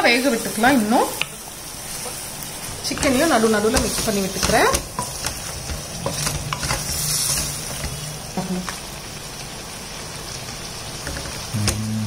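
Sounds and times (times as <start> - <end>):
chicken sizzling in a pan: 0.0 - 12.0
spatula knocking and scraping pan: 2.8 - 8.8.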